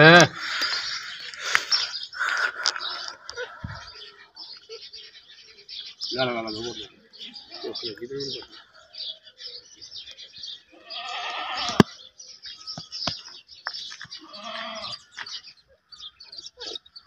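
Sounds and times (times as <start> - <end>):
birds chirping: 0.0 - 17.0
goat bleating: 10.7 - 11.9, 14.2 - 15.0.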